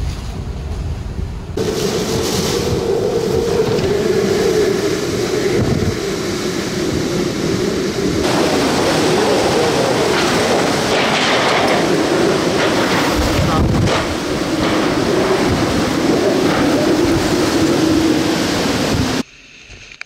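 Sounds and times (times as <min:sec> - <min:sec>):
howling wind: 0:00.0 - 0:20.0
wind noise on microphone: 0:00.0 - 0:20.0.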